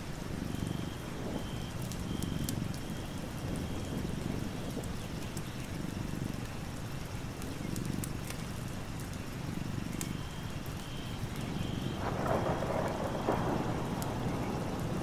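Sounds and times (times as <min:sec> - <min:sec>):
steady rain: 0:00.0 - 0:15.0
thunder rumbling: 0:11.5 - 0:15.0.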